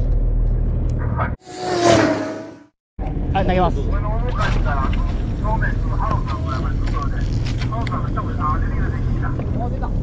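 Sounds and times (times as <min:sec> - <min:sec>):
whoosh transition effect: 0:01.4 - 0:02.8.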